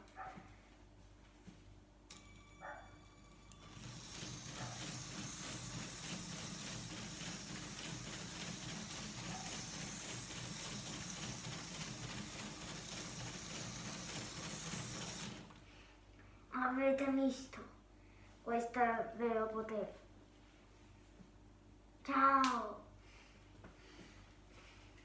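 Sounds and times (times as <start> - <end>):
toy train motor whirring: 3.5 - 15.5
rapid clicking of wheels: 3.8 - 15.6.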